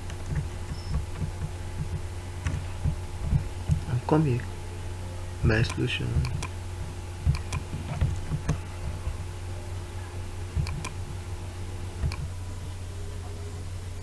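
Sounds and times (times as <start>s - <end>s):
steady low hum: 0.0s - 14.0s
keyboard typing: 5.6s - 6.5s, 7.2s - 9.2s, 10.6s - 11.1s, 12.0s - 12.3s
computer mouse clicks: 5.7s - 6.6s, 7.3s - 8.6s, 10.6s - 11.0s, 12.0s - 12.3s.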